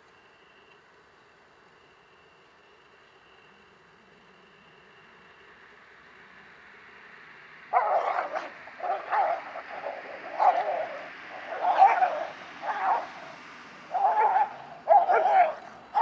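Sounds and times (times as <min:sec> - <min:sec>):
dogs barking and yelping: 0:07.7 - 0:16.0.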